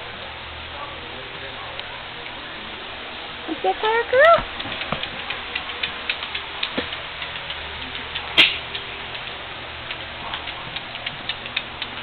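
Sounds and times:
dog nails clicking on tile: 0:04.4 - 0:12.0.

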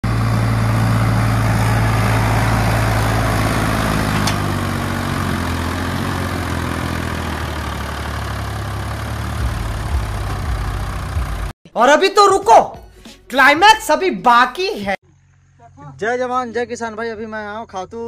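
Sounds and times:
tractor diesel engine running: 0:00.0 - 0:11.6.

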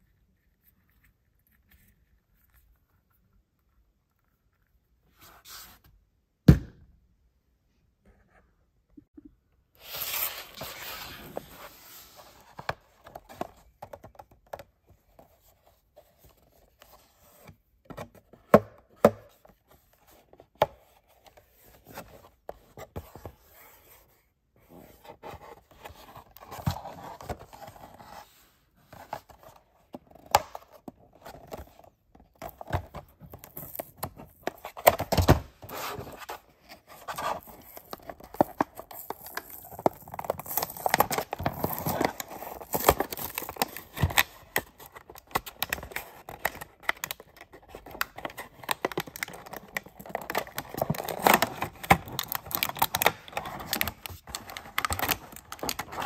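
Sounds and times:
cardboard and plastic crinkling: 0:31.1 - 0:56.0.

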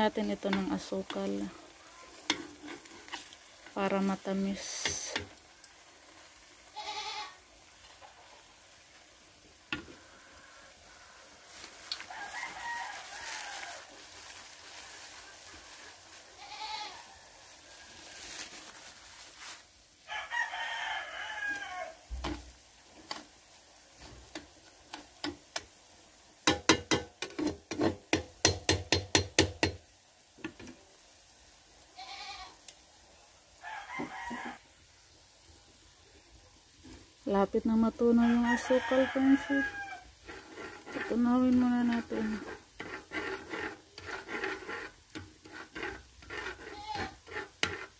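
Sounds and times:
rooster crowing: 0:11.9 - 0:13.9, 0:20.1 - 0:22.0, 0:33.6 - 0:34.7, 0:38.1 - 0:40.1.

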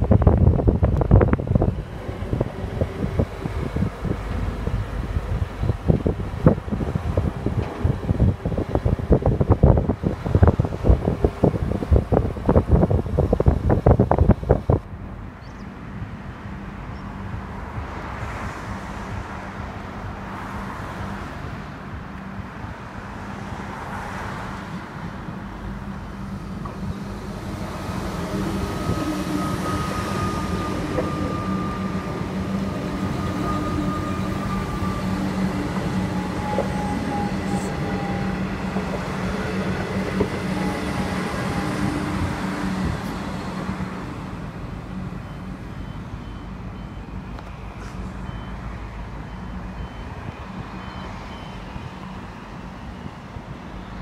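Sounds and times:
train wheels rumbling on track: 0:00.0 - 0:54.0.

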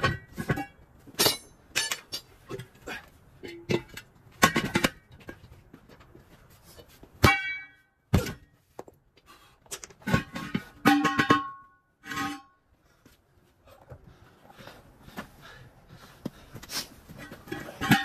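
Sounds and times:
metal wheel rims clanging: 0:00.0 - 0:06.0, 0:09.9 - 0:12.6, 0:17.1 - 0:18.0.

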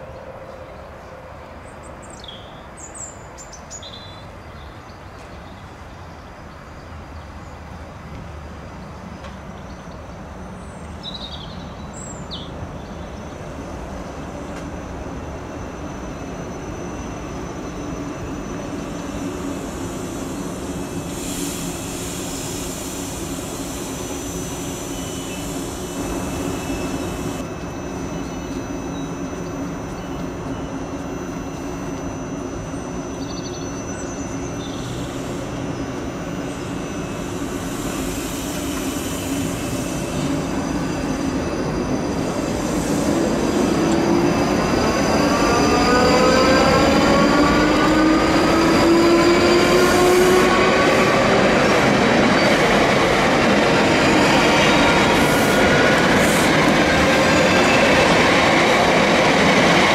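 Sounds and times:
electric train humming: 0:12.5 - 0:59.9
hiss: 0:19.2 - 0:27.4, 0:34.8 - 0:35.6, 0:36.4 - 0:40.9, 0:42.4 - 0:43.9, 0:55.0 - 0:56.7.

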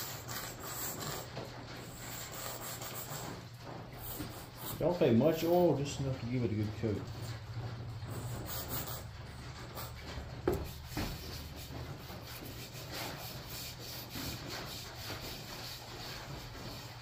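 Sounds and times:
hand rubbing oil into wood: 0:08.1 - 0:17.0.

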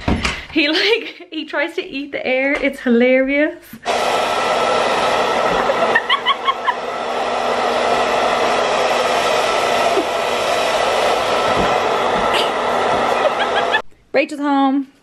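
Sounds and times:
hair dryer running: 0:03.8 - 0:13.8.

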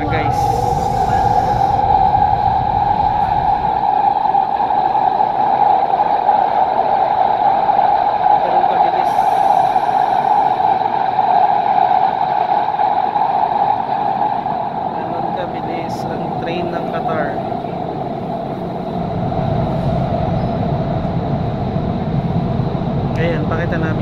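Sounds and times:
mid-pitched hum: 0:00.0 - 0:11.2, 0:12.1 - 0:24.0
train running noise: 0:00.0 - 0:24.0.

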